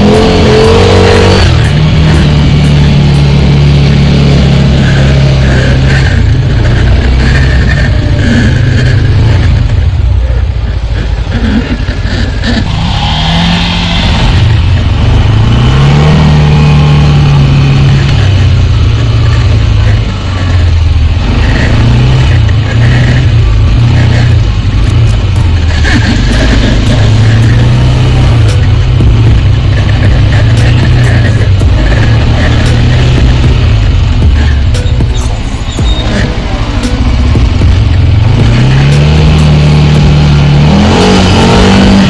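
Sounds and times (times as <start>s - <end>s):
atv engine revving: 0.0s - 42.0s.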